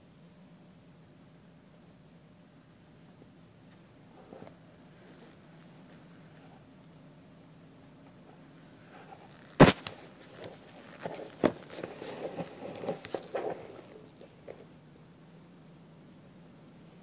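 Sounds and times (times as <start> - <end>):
small taps and rustles: 8.0 - 14.7
sharp knock: 9.6 - 10.0.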